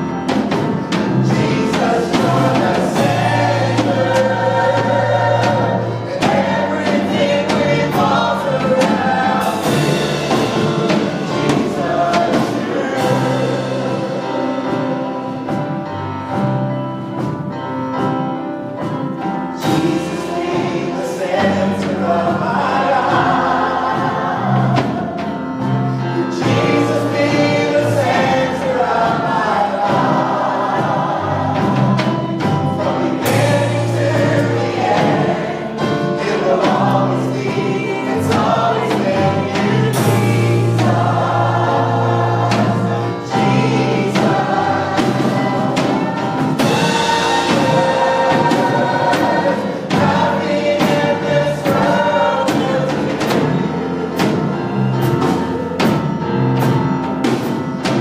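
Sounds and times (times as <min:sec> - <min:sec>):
group of voices singing: 0:00.0 - 0:16.5, 0:19.2 - 0:58.0
drum and cymbal beats: 0:00.0 - 0:58.0
gospel band playing: 0:00.0 - 0:58.0.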